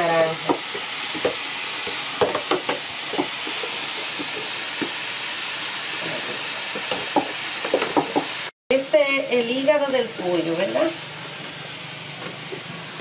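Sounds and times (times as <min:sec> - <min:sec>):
chicken sizzling in a pot: 0:00.0 - 0:13.0
wood fire pops and crackles: 0:00.5 - 0:05.0.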